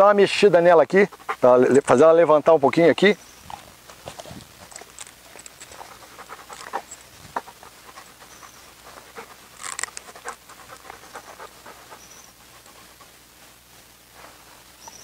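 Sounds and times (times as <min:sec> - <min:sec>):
dog panting: 0:00.6 - 0:02.2, 0:03.5 - 0:13.3.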